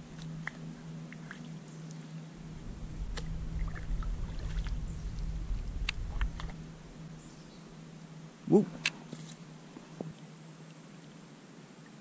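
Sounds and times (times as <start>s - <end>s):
low rumble: 2.4s - 8.3s
small splashes: 3.1s - 4.8s.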